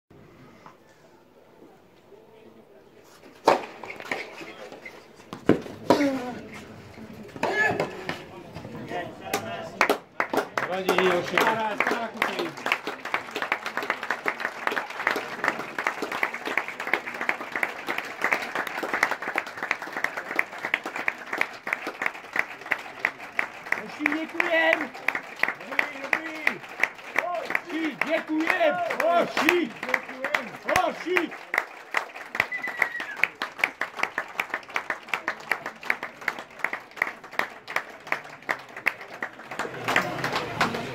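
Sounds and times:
crowd applauding: 8.8 - 40.9.

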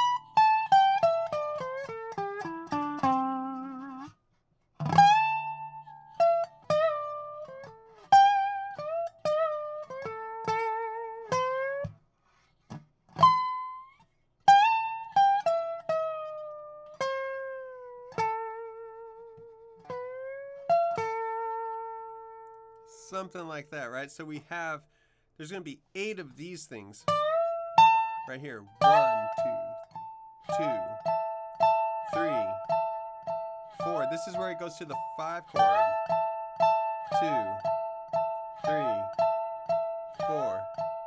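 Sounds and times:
slide guitar solo: 0.0 - 4.2, 4.8 - 12.0, 13.2 - 24.8, 26.0 - 41.0.

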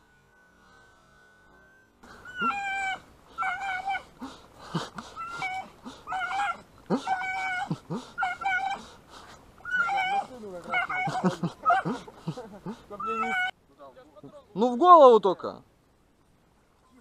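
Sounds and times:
dog whining: 2.1 - 4.1, 5.1 - 8.9, 9.6 - 12.0, 13.0 - 13.5.

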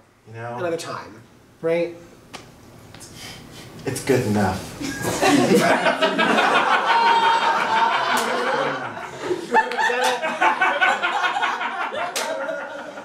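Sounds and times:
audience laughing: 4.8 - 13.0.

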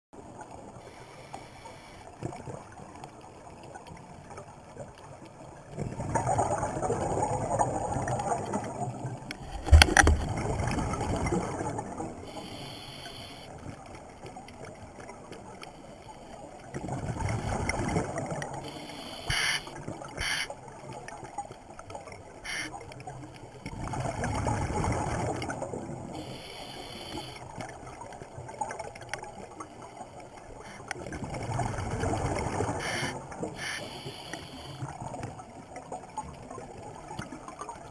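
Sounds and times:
regulator inhale hiss: 0.8 - 2.1, 12.3 - 13.5, 18.7 - 20.5, 22.5 - 22.7, 26.2 - 27.4, 32.8 - 34.8
exhaled bubbles rumbling: 2.3 - 12.3, 16.5 - 18.7, 19.7 - 26.3, 30.9 - 33.6.

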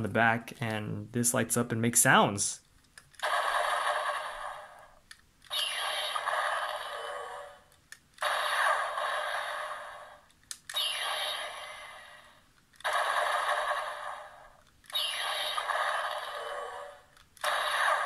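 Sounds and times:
tinny electronic toy sounds: 10.7 - 18.0.

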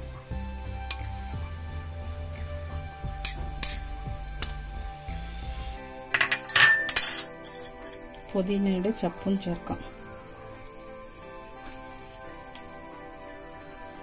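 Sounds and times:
metal spoon clinking on plate: 6.1 - 8.0.

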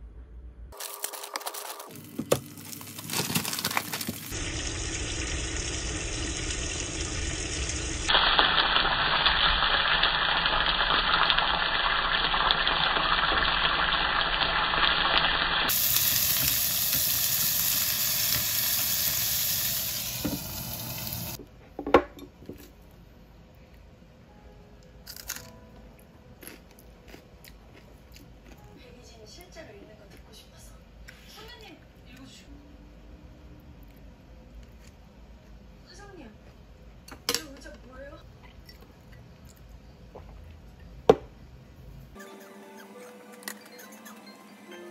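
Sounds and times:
food sizzling in oil: 3.7 - 21.4.

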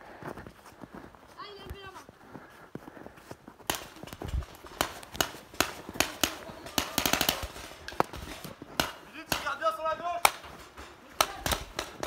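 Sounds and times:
paintball markers firing: 3.6 - 12.0.

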